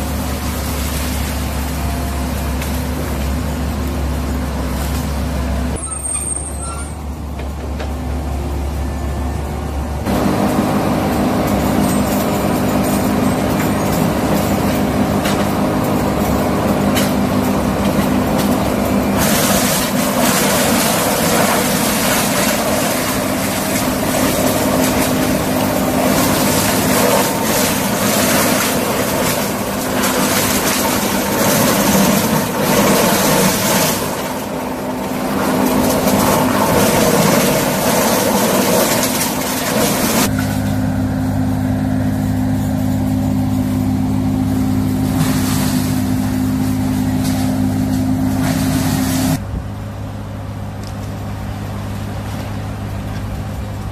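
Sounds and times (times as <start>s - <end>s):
excavator engine running: 0.0s - 53.9s
loud rough rushing noise: 9.6s - 49.7s.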